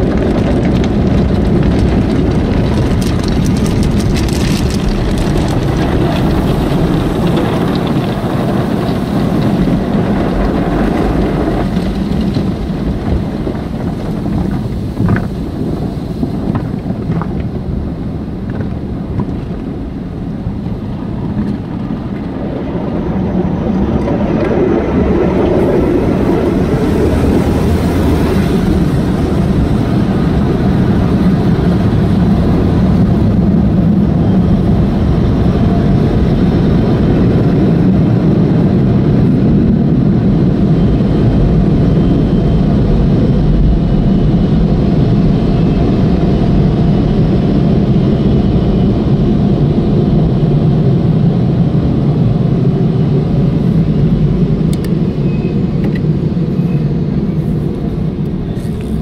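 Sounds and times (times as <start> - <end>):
water spraying on windshield: 0.0 - 22.6.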